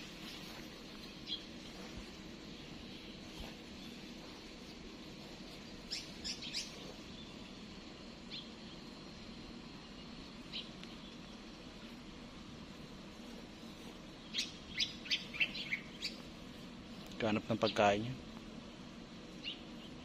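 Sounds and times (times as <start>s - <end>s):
low background hum: 0.0s - 20.0s
small birds chirping: 0.0s - 20.0s.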